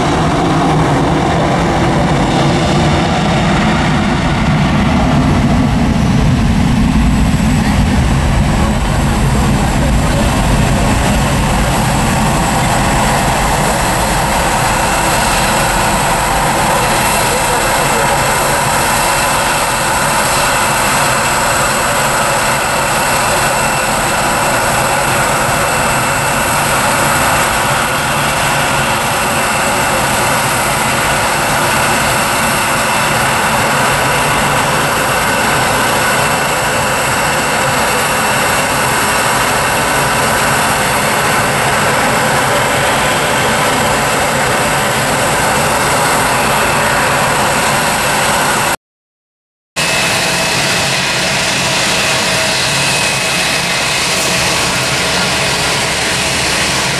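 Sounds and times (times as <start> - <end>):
high engine whine: 0.0 - 48.8, 49.8 - 56.9
jet engines roaring: 0.0 - 48.8, 49.8 - 56.9.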